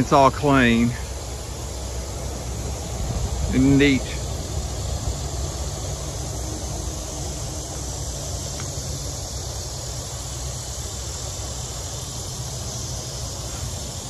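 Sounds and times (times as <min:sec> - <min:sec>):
even hiss: 0:00.0 - 0:14.0.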